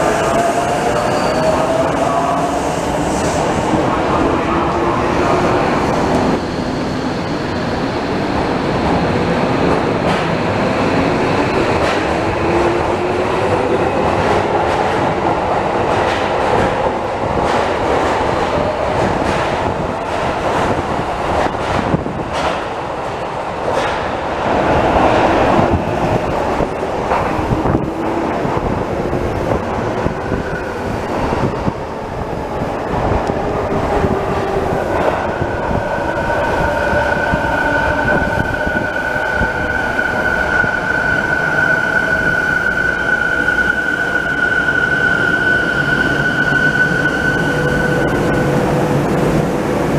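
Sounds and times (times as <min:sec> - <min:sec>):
train arriving along platform: 0:00.0 - 0:49.9.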